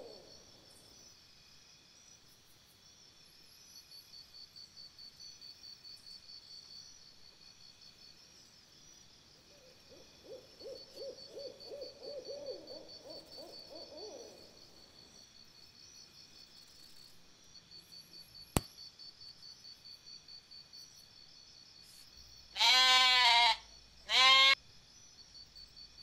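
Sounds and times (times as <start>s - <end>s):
high-pitched pulsing insect chirp: 0.0s - 26.0s.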